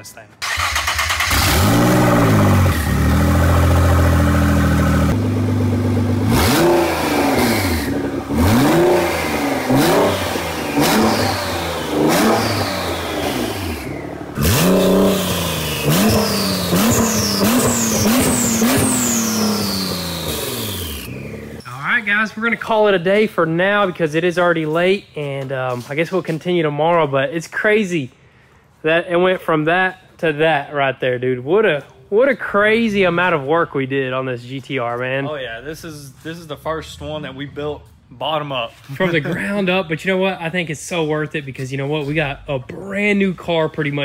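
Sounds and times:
car engine revving: 0.4s - 21.6s.

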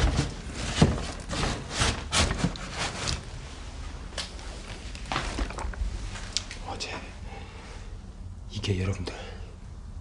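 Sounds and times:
rustling and knocking: 0.0s - 3.3s.

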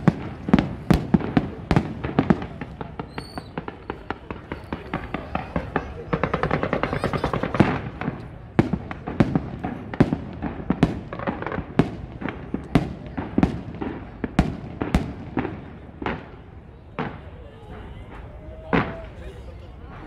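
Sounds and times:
fireworks bangs with echo: 0.0s - 20.0s
fireworks crackling: 0.0s - 20.0s.

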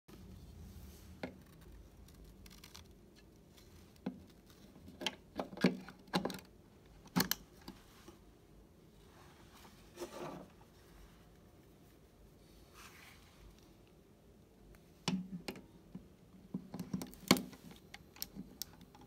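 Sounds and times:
soft plastic rub: 0.1s - 5.0s, 7.6s - 14.0s.

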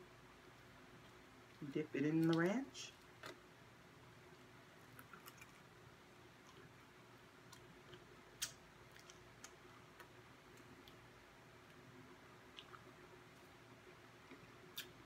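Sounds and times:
faint clicks of chewing: 4.3s - 5.7s, 6.4s - 11.8s, 12.4s - 15.0s.

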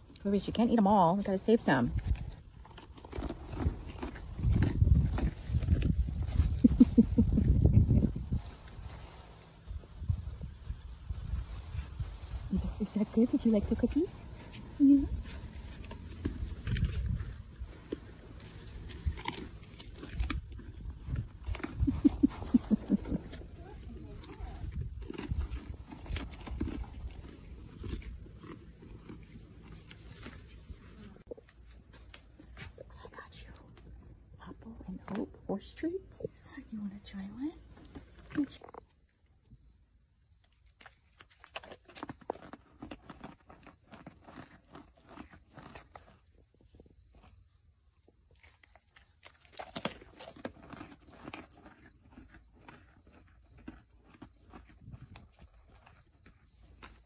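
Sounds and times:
deer chewing crunchy snack: 0.0s - 34.2s, 37.5s - 57.0s.

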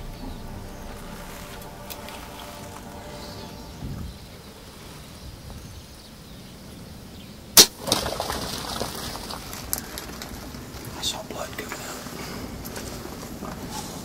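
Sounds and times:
rustling and clatter: 7.8s - 11.0s.

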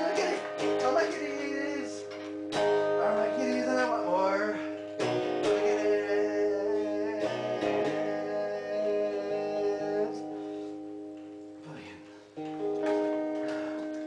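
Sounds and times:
man singing: 0.0s - 10.5s
electric guitar strummed: 0.0s - 14.0s.

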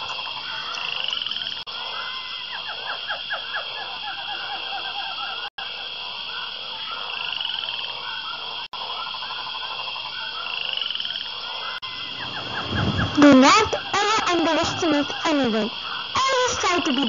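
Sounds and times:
chirping croaking animal calls: 0.0s - 17.0s
steady high drone: 11.8s - 17.0s.

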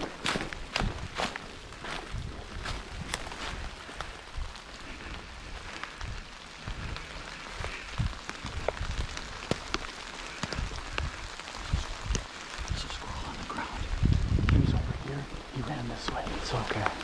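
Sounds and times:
footsteps through leaf litter: 0.0s - 12.0s
rain on dry leaves: 0.0s - 17.0s.

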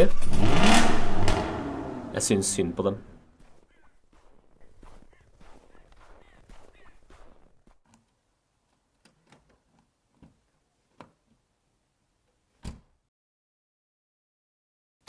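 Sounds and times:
faint clicks and knocks: 7.6s - 11.4s.

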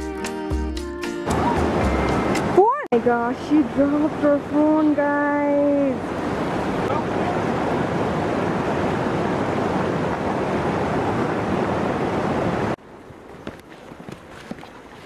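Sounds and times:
stream rushing over boulders: 1.3s - 5.0s, 5.6s - 15.0s
footsteps on stony path: 13.3s - 15.0s.

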